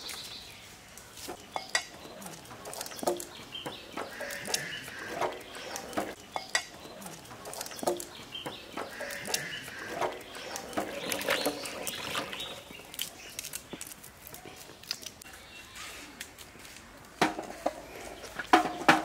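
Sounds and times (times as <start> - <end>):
farm animal calling: 3.4 - 6.2, 8.2 - 13.0.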